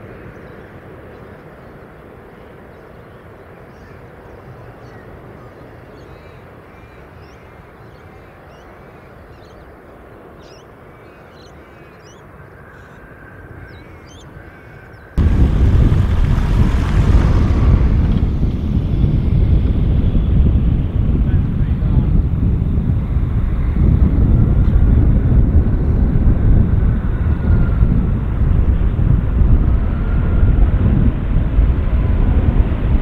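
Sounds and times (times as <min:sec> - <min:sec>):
distant jet rumble: 0:00.0 - 0:33.0
birds chirping: 0:00.2 - 0:22.0
loud jet engines rumbling: 0:15.2 - 0:33.0.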